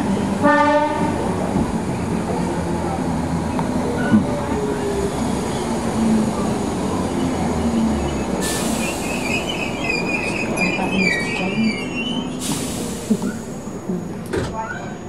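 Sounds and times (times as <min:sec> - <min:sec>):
train running rumble: 0:00.0 - 0:15.0
brake squeals: 0:03.8 - 0:13.8.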